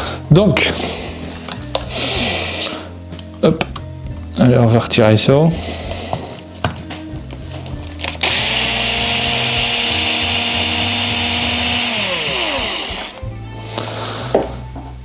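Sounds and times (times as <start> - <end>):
electric screwdriver motor whining: 8.0 - 13.2.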